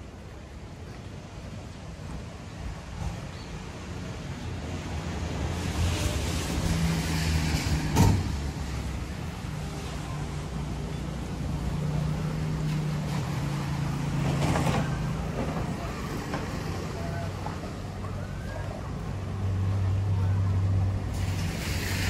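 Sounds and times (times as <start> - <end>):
faint voices: 8.9 - 21.4.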